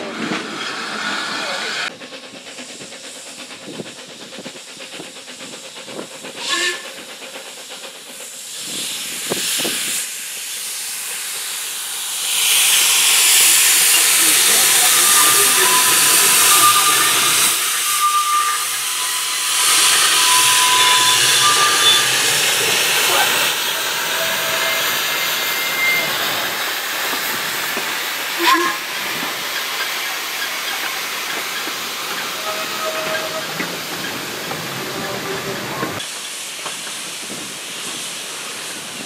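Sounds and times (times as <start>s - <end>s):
steam locomotive hissing: 0.0s - 39.0s
wheels squealing: 13.9s - 26.7s, 29.5s - 36.0s.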